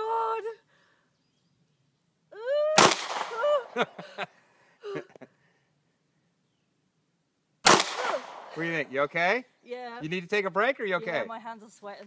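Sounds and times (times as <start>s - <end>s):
woman's high-pitched exclamation: 2.3s - 3.8s
pistol shot: 2.8s - 3.4s, 7.6s - 8.6s.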